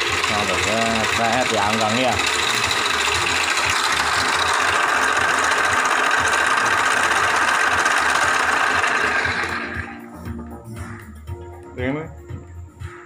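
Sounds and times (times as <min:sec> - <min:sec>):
mini lathe whirring: 0:00.0 - 0:10.1
motor low hum: 0:00.0 - 0:11.5.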